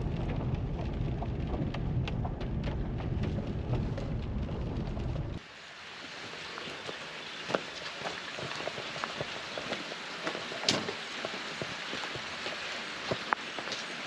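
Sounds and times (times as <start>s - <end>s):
car cabin rumble: 0.0s - 5.4s
raindrops ticking on windshield: 0.0s - 5.4s
light rain falling outdoors: 0.0s - 14.0s.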